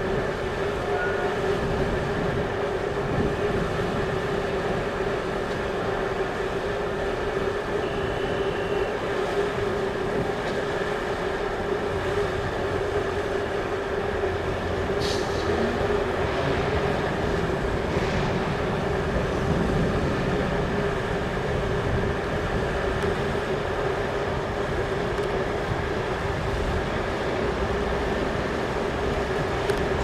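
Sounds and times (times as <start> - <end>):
rail vehicle engine drone: 0.0 - 30.0
low rumble: 14.4 - 23.6
short hiss: 15.0 - 15.5.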